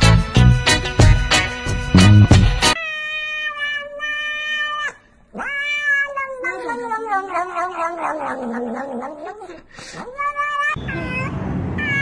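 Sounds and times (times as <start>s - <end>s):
cat meowing: 2.8s - 12.0s.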